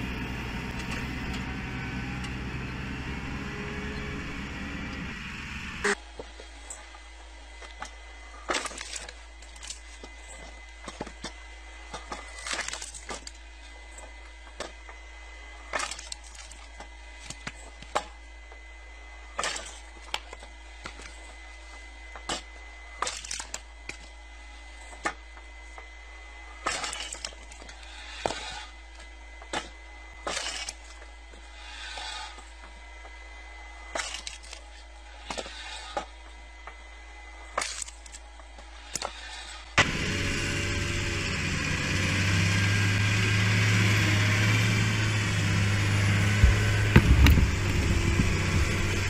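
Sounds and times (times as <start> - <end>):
log splitter humming: 0.0 - 6.3, 38.9 - 49.0
wood splitting cracks: 8.5 - 9.9, 12.2 - 13.4, 15.7 - 16.7, 19.4 - 21.1, 23.0 - 24.1, 26.6 - 28.4, 29.5 - 31.0, 34.0 - 34.6, 37.6 - 38.2, 45.8 - 49.0.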